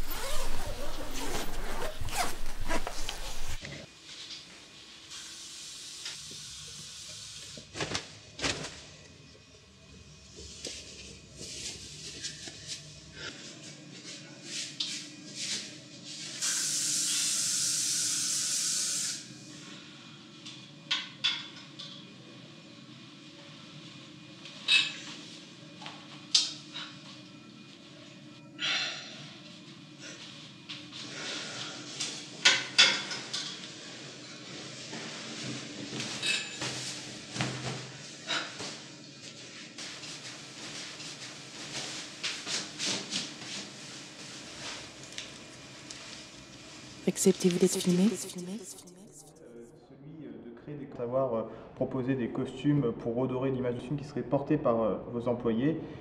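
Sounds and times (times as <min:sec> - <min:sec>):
clothes rustling: 0:00.1 - 0:03.6.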